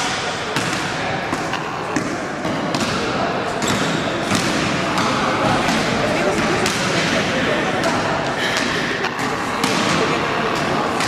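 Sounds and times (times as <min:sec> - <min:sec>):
voices: 0:00.0 - 0:11.0
basketballs bouncing on wooden floor: 0:00.5 - 0:07.2.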